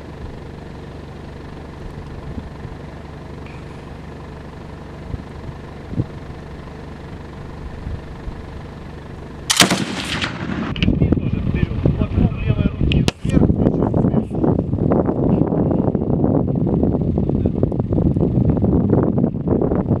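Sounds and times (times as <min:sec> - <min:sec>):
steady low rumble: 0:00.0 - 0:20.0
loud heavy machine gun shot: 0:09.5 - 0:11.2.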